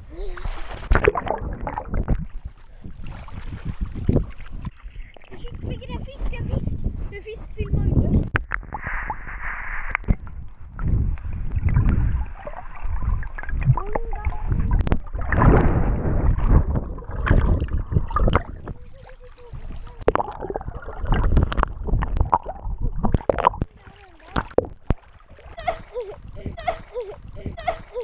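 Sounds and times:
water sloshing and gurgling: 0.0 - 28.0
knocks and splashes: 0.9 - 6.5, 9.9 - 26.6.

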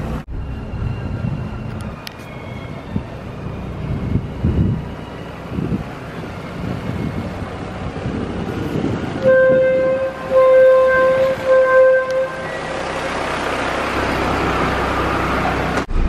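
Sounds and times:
wind noise: 0.3 - 12.2
boat horn blasts: 9.2 - 13.4.

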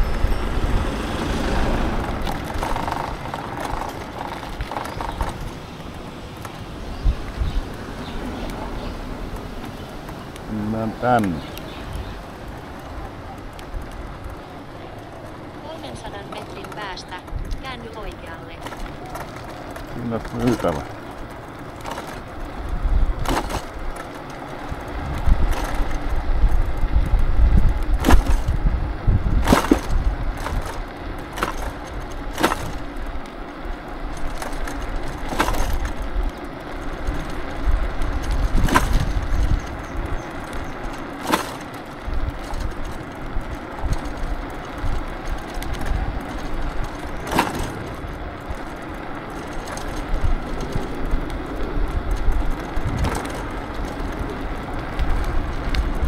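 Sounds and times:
road and wind rumble: 0.0 - 56.0
scooter knocking over bumps: 0.0 - 56.0.

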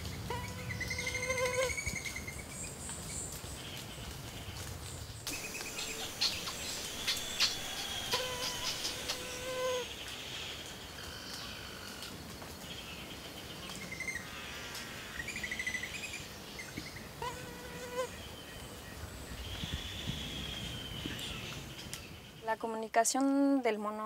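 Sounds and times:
flying insect buzzing: 0.3 - 1.8, 5.3 - 9.9.

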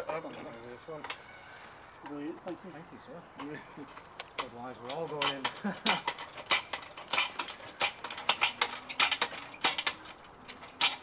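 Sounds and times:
winch ratchet and chain clicking: 3.4 - 11.0.

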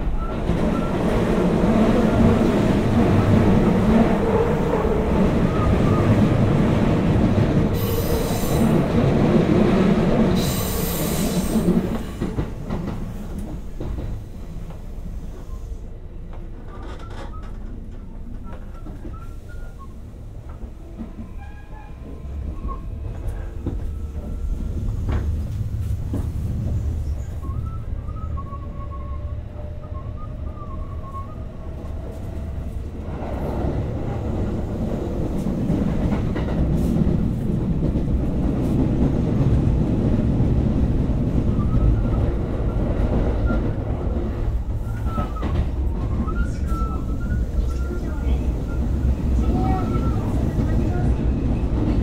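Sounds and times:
train rumbling on rails: 0.0 - 52.0
rail-joint clicks: 10.1 - 15.6, 16.2 - 27.4.

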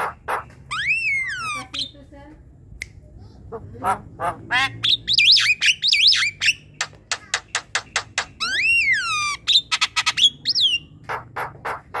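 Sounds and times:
bird song with clicks and whistles: 0.0 - 2.0, 5.0 - 11.2.

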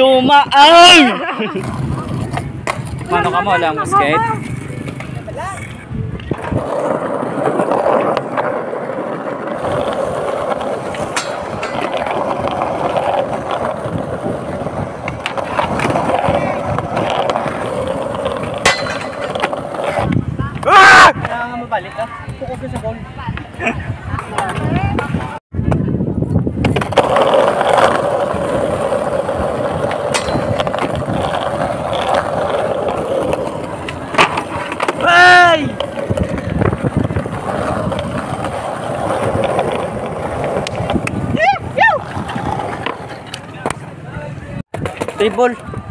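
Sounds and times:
skateboard wheels rolling on concrete: 0.0 - 45.9
skateboard clacking on metal rail: 9.6 - 13.2, 18.0 - 19.9, 29.6 - 36.5.

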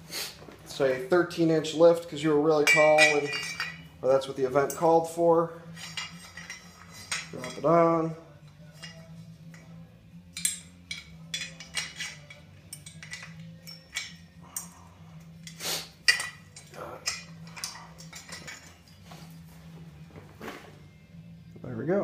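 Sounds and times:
steady low hum: 0.0 - 22.0
metal parts clinking: 2.5 - 3.9, 5.7 - 7.8, 8.5 - 19.1.

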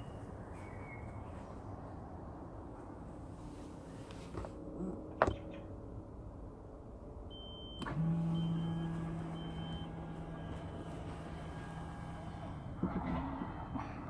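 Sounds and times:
short beeps: 7.3 - 10.6
electric motor hum: 7.9 - 13.7.

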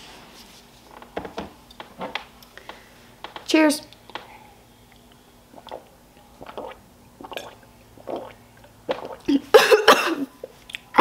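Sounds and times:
person gulping water: 5.5 - 9.4.

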